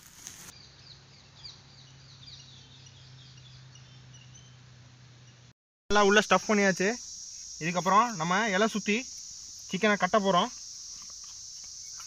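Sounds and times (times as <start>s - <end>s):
bird chirping: 0.5s - 4.6s.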